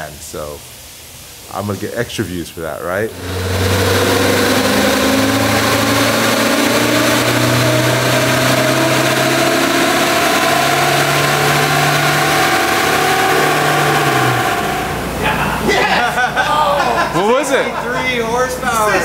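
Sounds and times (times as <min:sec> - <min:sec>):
van engine revving under load: 0:03.1 - 0:15.2.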